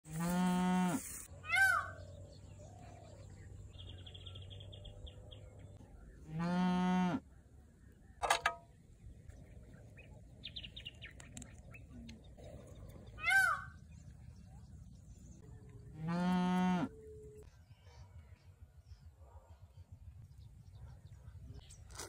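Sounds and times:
cattle mooing: 16.0 - 16.9.

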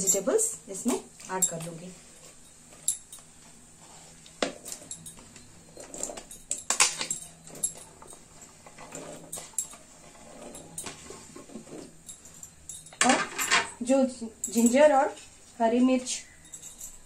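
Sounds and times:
vegetables clattering into a pot: 13.0 - 13.8.

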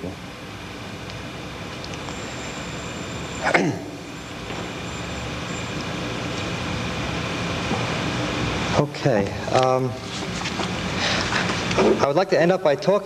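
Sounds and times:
faint steady tones: 0.0 - 9.0
hall hum and hiss: 0.0 - 13.0.

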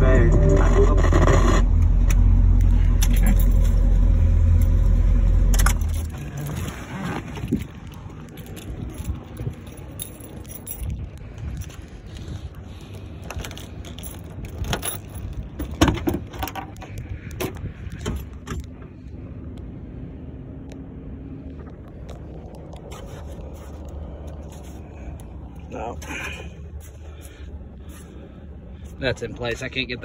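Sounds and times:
low steady rumble: 0.0 - 30.0
rattly jingle: 3.0 - 4.0, 7.5 - 11.8, 13.2 - 15.8
handling clicks and knocks: 12.8 - 18.8.

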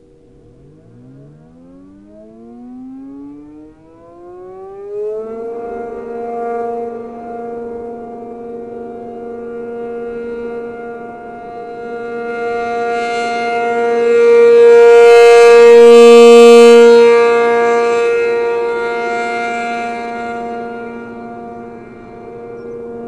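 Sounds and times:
warning siren two-note chord: 0.0 - 23.0.

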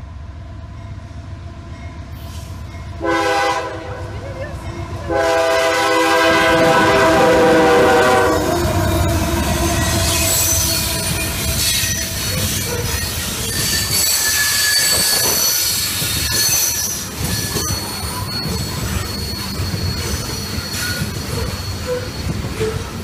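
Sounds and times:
train rumble: 0.0 - 23.0
train wheels squealing on rails: 1.7 - 3.0, 6.6 - 23.0.

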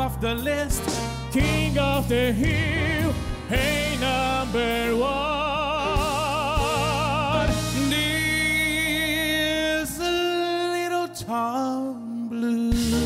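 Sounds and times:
band accompaniment: 0.0 - 10.2, 12.7 - 13.0
operatic tenor singing: 0.0 - 13.0.

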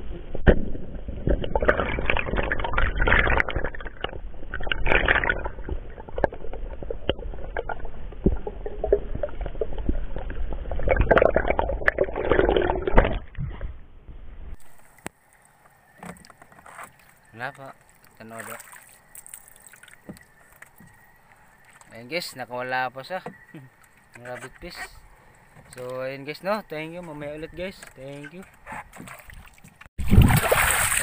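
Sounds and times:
muffled underwater rumble: 0.0 - 14.9
rushing gurgling water: 0.7 - 13.4, 29.0 - 31.0.

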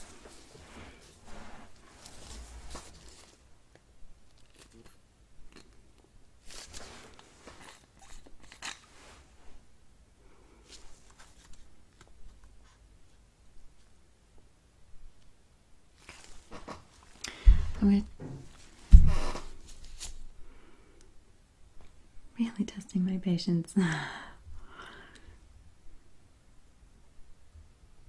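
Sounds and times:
object handling rustles and clicks: 0.0 - 5.8, 6.4 - 9.3.

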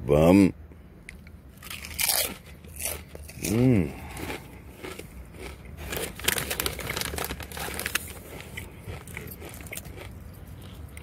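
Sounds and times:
foil chip bag crinkling: 4.2 - 10.1
chips rustling and crackling: 4.2 - 10.2.

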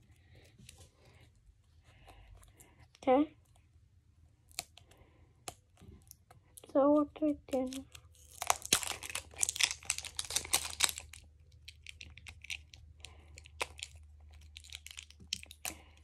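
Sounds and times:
plastic wrap crinkling: 6.2 - 16.0.

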